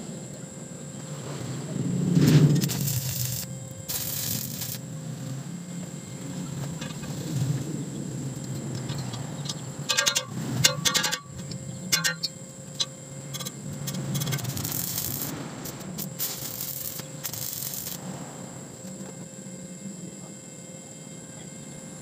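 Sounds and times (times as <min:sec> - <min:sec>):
stick welding crackling: 0:01.7 - 0:19.1
metal pipe pieces clinking: 0:09.9 - 0:11.2.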